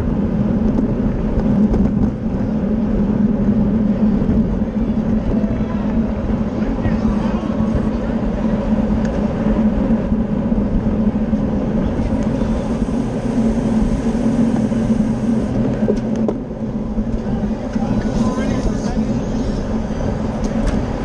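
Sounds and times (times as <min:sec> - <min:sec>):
bike tyres and drivetrain hum: 0:00.0 - 0:21.0
wind on microphone: 0:00.0 - 0:21.0.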